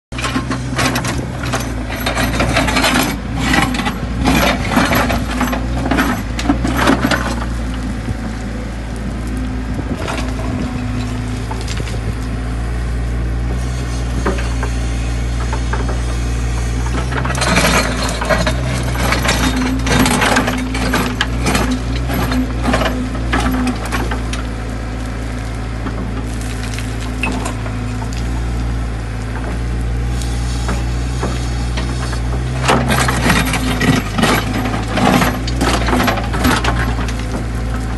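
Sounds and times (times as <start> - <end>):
diesel engine running: 0.1 - 37.9
bucket scraping through gravel: 31.4 - 37.9.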